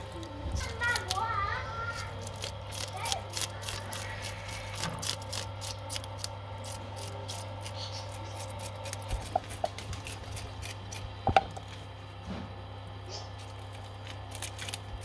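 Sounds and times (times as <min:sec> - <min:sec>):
fish scaler scraping scales: 0:01.8 - 0:11.1.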